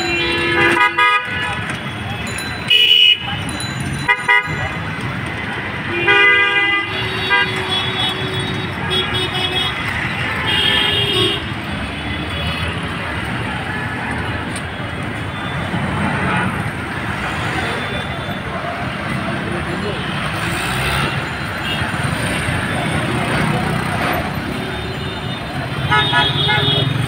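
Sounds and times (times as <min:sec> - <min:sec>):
vehicle horn toots: 0:00.0 - 0:01.6, 0:05.9 - 0:09.8, 0:24.7 - 0:26.9
city street traffic: 0:00.0 - 0:27.0.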